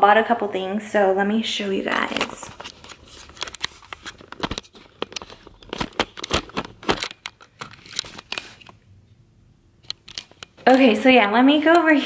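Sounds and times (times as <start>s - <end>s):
rustling and crinkling handling noise: 1.7s - 8.8s.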